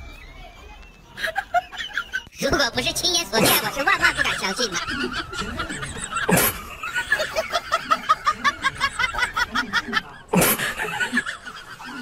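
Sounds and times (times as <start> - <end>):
person laughing: 3.4 - 12.0.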